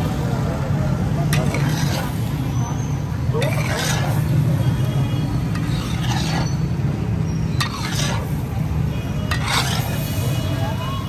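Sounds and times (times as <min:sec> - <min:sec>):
steel spatula scraping iron griddle: 0:01.2 - 0:02.4, 0:03.3 - 0:04.8, 0:05.4 - 0:08.6, 0:09.2 - 0:10.4.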